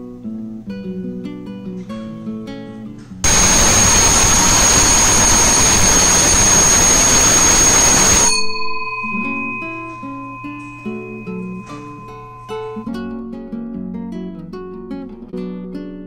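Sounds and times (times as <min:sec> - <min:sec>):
electric gong bell ringing: 0:03.2 - 0:13.0
acoustic guitar music: 0:09.1 - 0:16.0.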